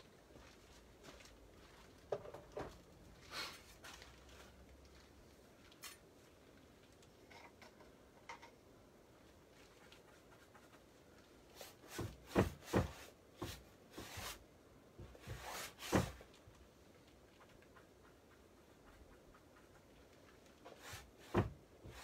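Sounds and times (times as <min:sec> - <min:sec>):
knocks and rubbing on canvas: 0:11.6 - 0:14.4, 0:15.0 - 0:16.3, 0:20.6 - 0:22.0.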